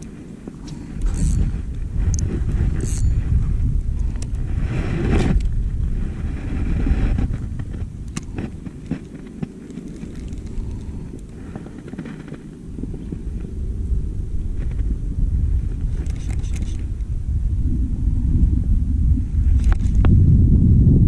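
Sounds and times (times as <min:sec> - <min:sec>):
brief rustle: 0:00.0 - 0:13.5, 0:15.7 - 0:16.9, 0:19.6 - 0:20.1
wind buffeting microphone: 0:00.0 - 0:21.0.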